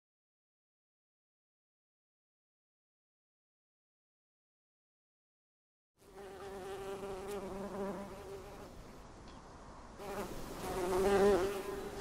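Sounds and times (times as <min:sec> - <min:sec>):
bee buzzing in flight: 0:06.1 - 0:08.7, 0:10.0 - 0:12.0.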